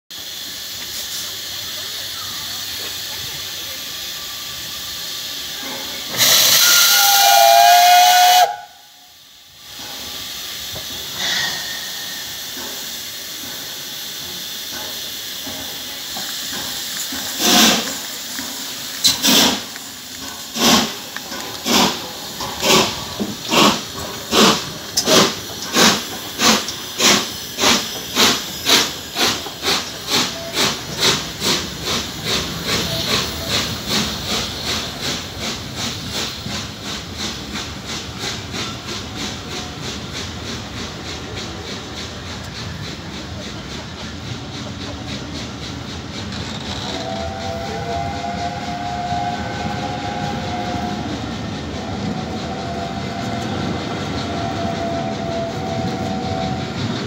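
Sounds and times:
steam hissing: 0.1s - 57.0s
locomotive exhaust chuffs: 0.2s - 57.0s
steam locomotive whistle blast: 4.1s - 9.2s, 30.1s - 30.9s, 46.6s - 57.0s.

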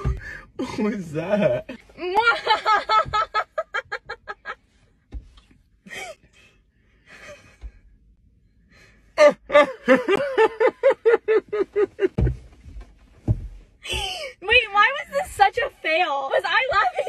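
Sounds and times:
people laughing: 9.5s - 12.2s.

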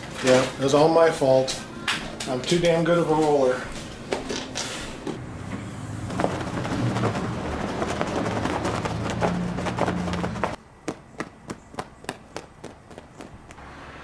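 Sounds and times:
low outdoor rumble: 5.2s - 10.9s.

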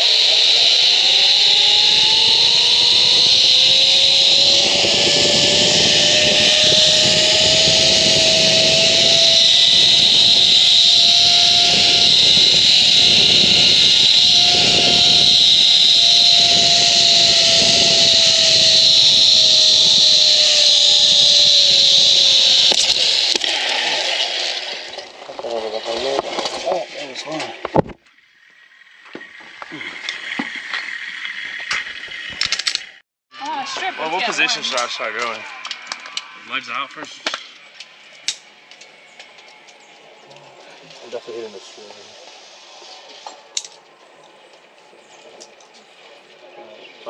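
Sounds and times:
steady rushing hiss: 0.0s - 27.7s
zipline pulley whine: 0.0s - 47.0s.

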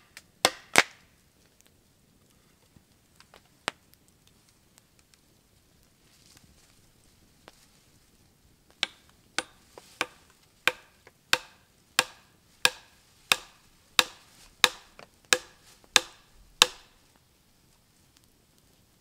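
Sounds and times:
axe striking a log: 0.4s - 0.9s, 8.8s - 17.0s.

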